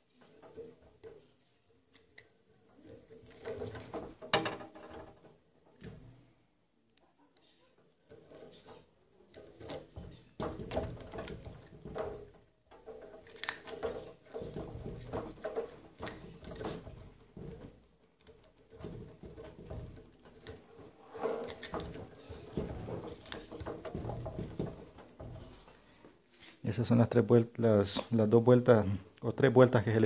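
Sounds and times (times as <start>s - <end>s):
wire rustling and scraping: 7.4s - 26.6s.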